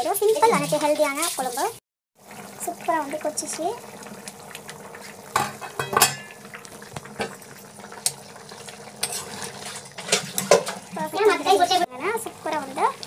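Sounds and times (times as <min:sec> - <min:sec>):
thick curry bubbling in a pan: 0:00.1 - 0:13.0
sharp pops and clicks: 0:06.5 - 0:07.4, 0:08.0 - 0:08.2.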